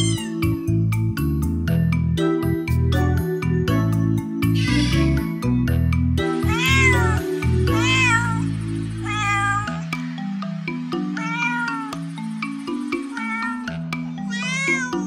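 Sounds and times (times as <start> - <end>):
cat meowing: 0.0 - 0.5, 4.6 - 5.3, 6.4 - 9.9, 11.1 - 12.1, 13.1 - 15.0
background music: 0.0 - 15.0.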